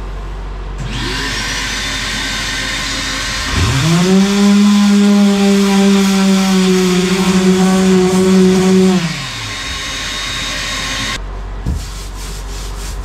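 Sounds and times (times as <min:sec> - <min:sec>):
low hum: 0:00.0 - 0:11.5
electric sander running: 0:00.8 - 0:11.2
vacuum rushing hiss: 0:00.8 - 0:11.2.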